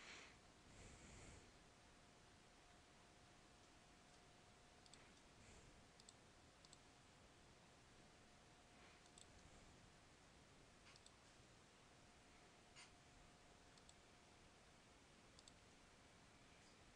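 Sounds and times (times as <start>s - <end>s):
faint steady hum: 0.0s - 16.9s
computer mouse clicks: 4.8s - 5.3s, 6.0s - 6.9s, 9.0s - 9.4s, 10.8s - 11.2s, 13.7s - 14.0s, 15.4s - 15.6s.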